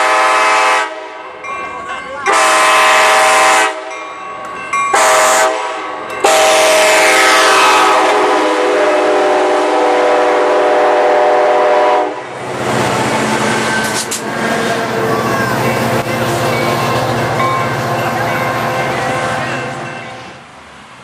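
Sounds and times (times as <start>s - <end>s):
train horn chord blasts: 0.0s - 1.2s, 2.3s - 4.0s, 4.9s - 12.3s
train wheels rumbling on rail: 0.0s - 21.0s.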